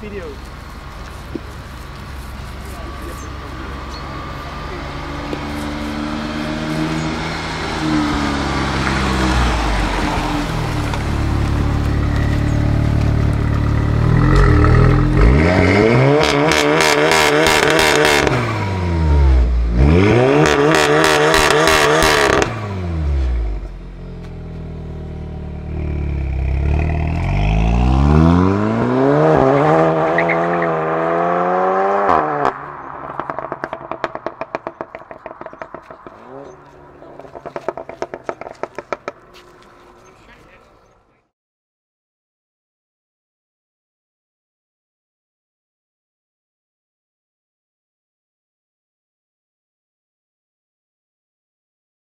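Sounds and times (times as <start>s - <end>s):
exhaust crackles: 0.0s - 18.6s, 32.0s - 41.0s
car engine accelerating through gears: 2.4s - 40.8s.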